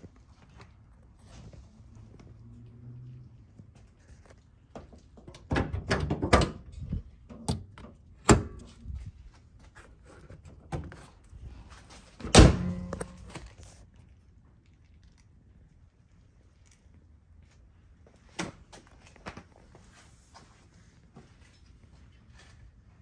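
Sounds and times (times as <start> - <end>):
car hood shutting with thunk: 12.2 - 13.2.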